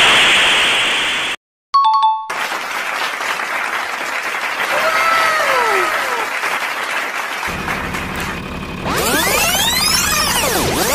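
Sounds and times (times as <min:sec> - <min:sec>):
crowd clapping: 0:02.3 - 0:08.7.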